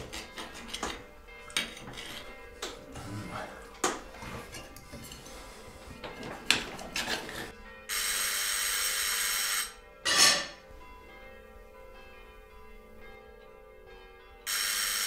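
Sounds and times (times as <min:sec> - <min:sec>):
cutlery clinking against plates: 0:00.0 - 0:07.6, 0:10.1 - 0:10.6
electric doorbell ringing: 0:07.9 - 0:10.2, 0:14.4 - 0:15.0.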